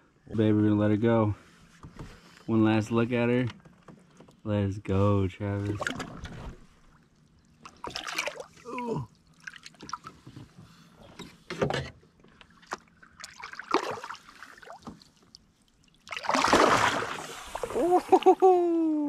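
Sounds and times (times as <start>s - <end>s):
small water splashes: 5.6s - 10.2s, 12.5s - 18.3s
water dripping and lapping: 5.7s - 10.4s, 12.3s - 18.2s.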